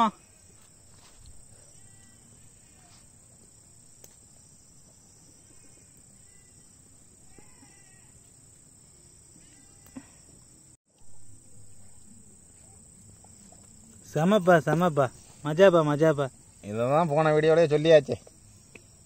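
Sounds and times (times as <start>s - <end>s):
crickets droning: 0.0s - 19.0s
faint distant calls: 4.9s - 19.0s.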